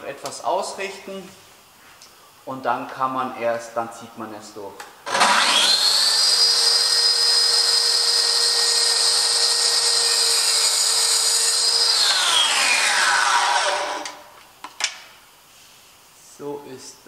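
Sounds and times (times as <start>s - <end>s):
track saw cutting wood: 5.1s - 14.2s.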